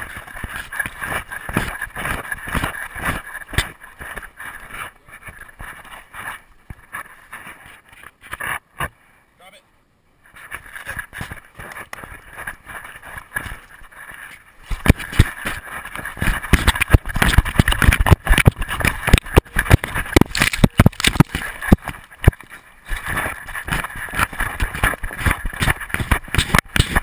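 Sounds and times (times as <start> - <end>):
camera knocking and rattling: 10.4 - 27.0.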